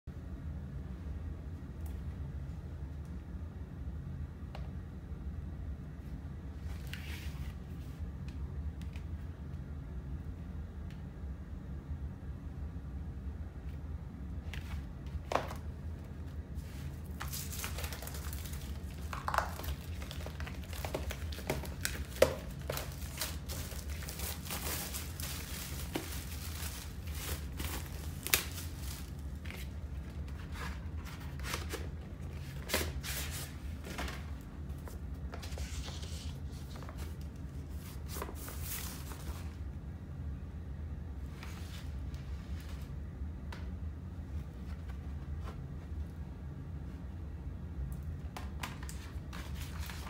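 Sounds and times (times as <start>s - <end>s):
paper sleeve rustling: 6.6s - 8.0s, 16.5s - 39.6s, 48.8s - 50.0s.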